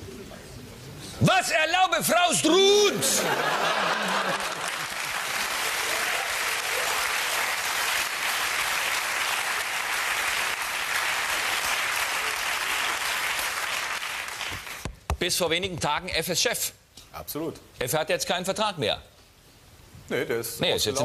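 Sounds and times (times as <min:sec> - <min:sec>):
audience applauding: 0:03.6 - 0:14.9.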